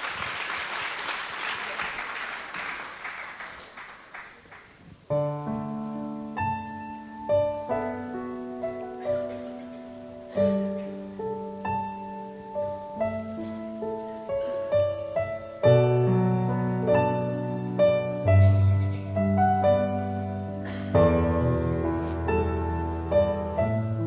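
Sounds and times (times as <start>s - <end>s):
people clapping: 0.0s - 5.0s
slow piano melody: 5.1s - 24.0s.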